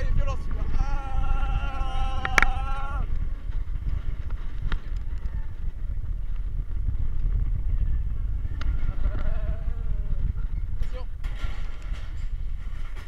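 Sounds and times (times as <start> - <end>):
sled wheels rumbling on metal track: 0.0 - 13.0
wind buffeting microphone: 0.0 - 13.0
sled rattling clicks and knocks: 10.4 - 13.0.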